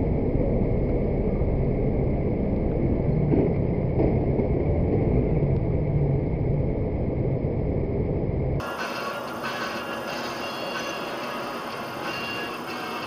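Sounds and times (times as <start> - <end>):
idling street traffic: 7.8 - 13.0.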